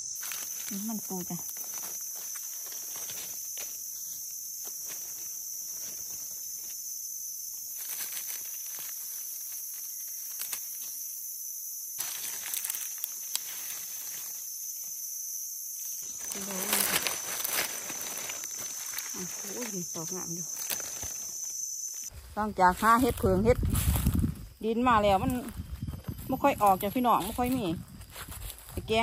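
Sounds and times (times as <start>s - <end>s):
insects droning: 0.0s - 29.0s
leaf litter rustling and crackling: 0.1s - 3.8s, 7.7s - 10.9s, 12.0s - 14.5s, 16.0s - 29.0s.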